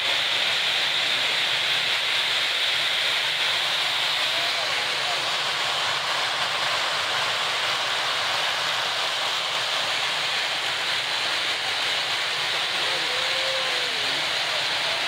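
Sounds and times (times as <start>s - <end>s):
large crowd noise: 3.5s - 5.4s, 11.5s - 15.0s.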